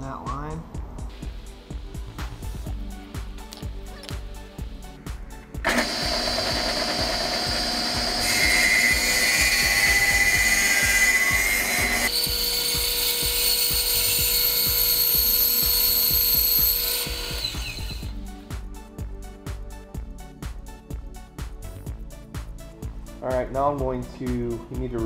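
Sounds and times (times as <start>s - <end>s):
bandsaw running and cutting: 5.6s - 18.1s
bandsaw whine winding down: 5.6s - 18.1s
table saw cutting wood: 5.6s - 18.1s.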